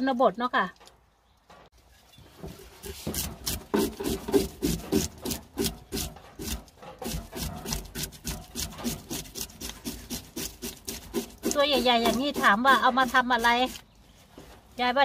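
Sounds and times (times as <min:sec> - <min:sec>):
fish scaler scraping scales: 0:02.8 - 0:13.8.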